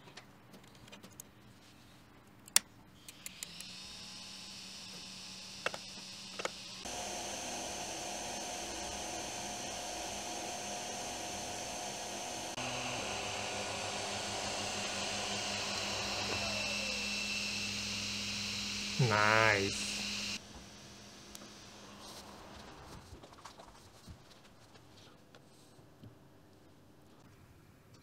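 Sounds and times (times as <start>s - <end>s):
printer whirring: 6.3s - 20.4s
steady hum: 6.3s - 22.0s.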